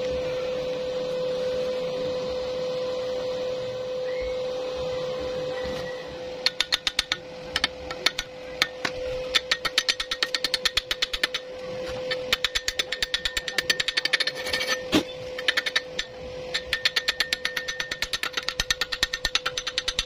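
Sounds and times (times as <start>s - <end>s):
steady hum: 0.0s - 20.0s
hammer tapping on metal: 6.4s - 11.4s, 12.1s - 14.4s, 15.4s - 20.0s.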